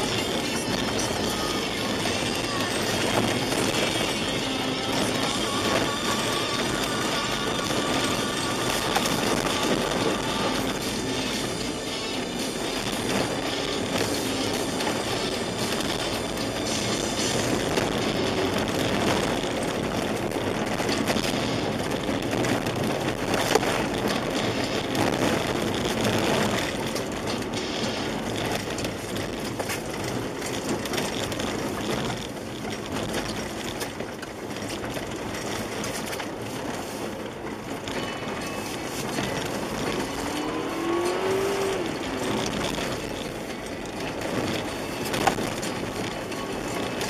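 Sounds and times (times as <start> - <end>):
car engine: 0.0 - 47.0
tyres rumbling over snow: 0.0 - 47.0.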